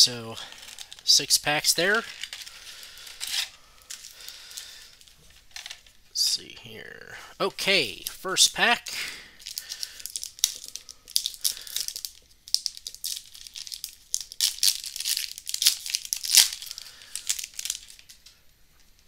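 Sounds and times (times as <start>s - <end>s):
wrapper being torn and crinkled: 0.5s - 1.1s, 1.8s - 5.1s, 9.4s - 18.3s.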